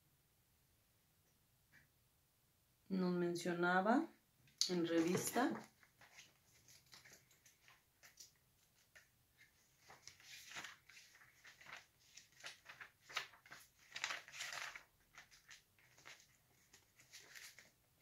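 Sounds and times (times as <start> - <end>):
page turning swishes: 4.8 - 17.7
glossy pages rustling: 4.8 - 18.0.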